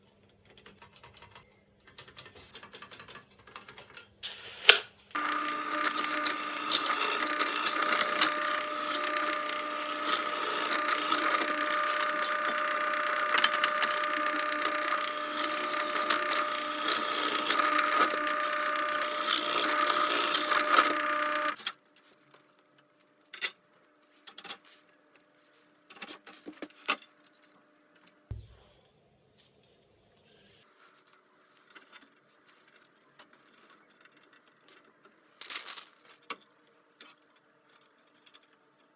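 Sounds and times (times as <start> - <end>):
drill cutting metal hiss: 5.2 - 21.6
drill press motor hum: 5.2 - 21.6.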